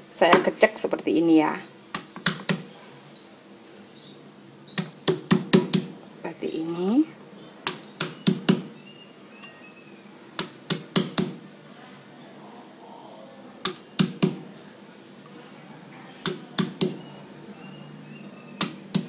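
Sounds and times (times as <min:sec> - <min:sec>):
stone pestle knocking on wooden board: 0:04.8 - 0:05.9, 0:07.7 - 0:08.7, 0:10.4 - 0:11.4, 0:13.7 - 0:14.4, 0:16.3 - 0:17.0.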